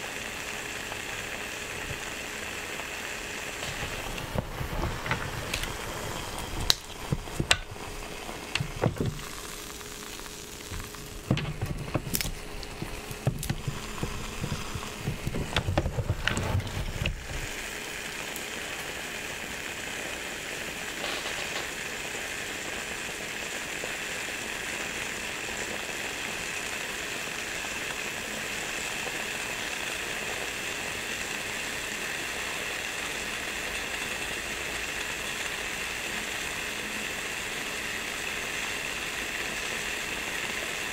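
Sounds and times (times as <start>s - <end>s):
dough sizzling in waffle maker: 0.0s - 40.9s
waffle maker clicks and knocks: 6.6s - 7.8s, 8.5s - 9.3s, 10.6s - 17.5s.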